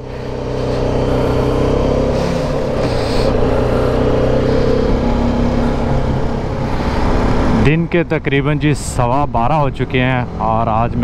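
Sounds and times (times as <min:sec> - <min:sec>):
motorcycle engine running: 0:00.0 - 0:07.7
wind and road noise: 0:00.0 - 0:11.0.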